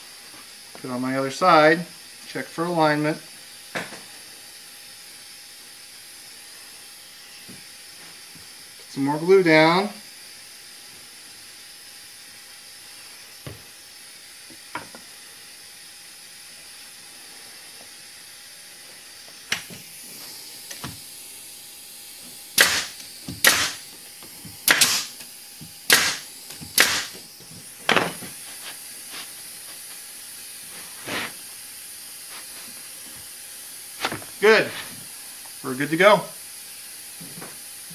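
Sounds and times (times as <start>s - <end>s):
steady hiss: 0.0s - 37.9s
nail gun firing: 22.6s - 23.8s, 24.6s - 25.2s, 25.9s - 27.2s.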